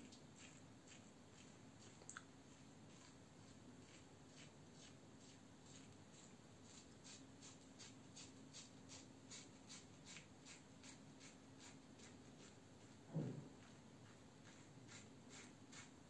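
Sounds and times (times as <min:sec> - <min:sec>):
thump: 0:13.1 - 0:13.5
razor scraping stubble: 0:13.6 - 0:16.0.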